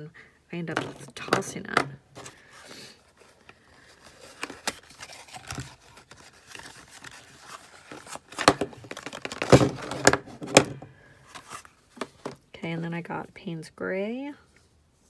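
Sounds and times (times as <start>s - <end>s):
cardboard cartons being handled: 0.7s - 12.4s
paint tubes set down: 8.4s - 10.9s.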